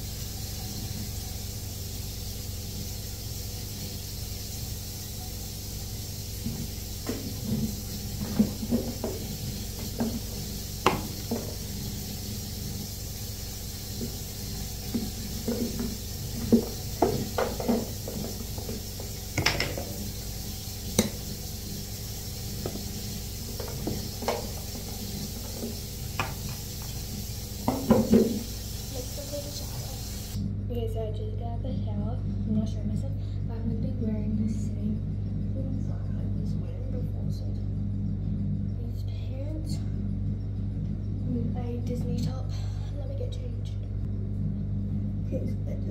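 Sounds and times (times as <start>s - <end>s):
steady background hum: 0.0s - 45.9s
plastic bottles knocking on counter: 15.0s - 18.8s, 27.7s - 28.4s.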